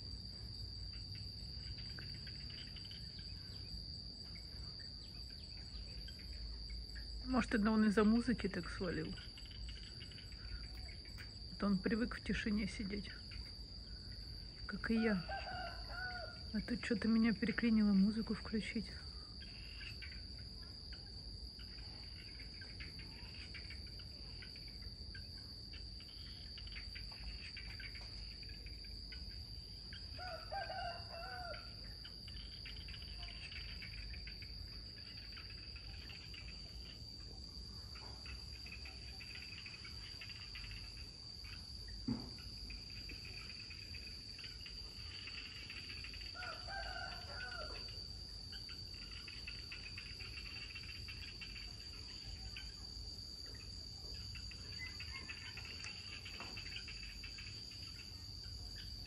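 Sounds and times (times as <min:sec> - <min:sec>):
insects trilling: 0:00.0 - 0:59.0
rooster crowing: 0:15.0 - 0:16.5, 0:30.2 - 0:31.8, 0:46.3 - 0:48.0.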